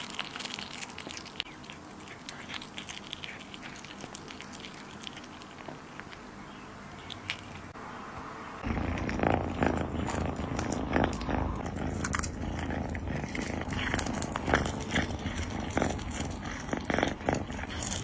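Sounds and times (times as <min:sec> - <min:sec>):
cat chewing with wet clicks: 0:00.0 - 0:06.3, 0:07.0 - 0:07.8, 0:08.6 - 0:18.0
cat purring: 0:08.6 - 0:18.0.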